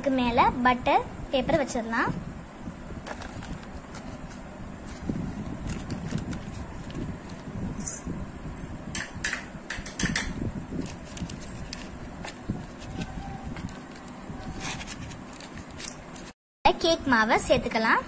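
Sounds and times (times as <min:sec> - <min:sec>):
paper crinkling in a cake pan: 0:03.0 - 0:07.8, 0:10.8 - 0:16.4.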